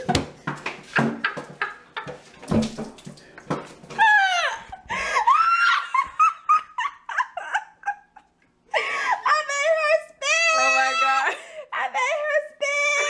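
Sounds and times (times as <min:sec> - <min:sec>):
women laughing: 0:04.0 - 0:09.5.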